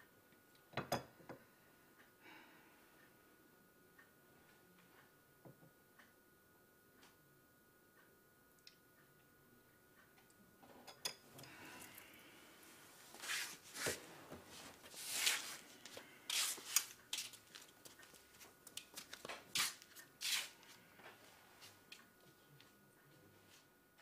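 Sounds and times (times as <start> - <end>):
clothing rustling: 12.6 - 18.4
footsteps scuffing on floor: 13.1 - 21.8.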